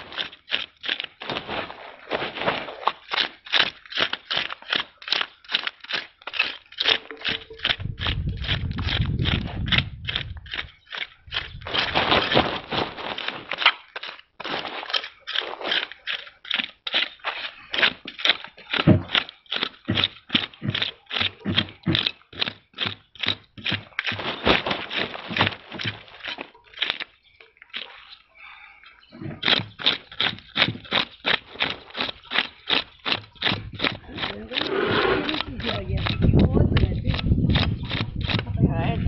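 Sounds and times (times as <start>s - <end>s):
blade scraping fish scales: 0.0s - 27.1s, 29.3s - 38.5s.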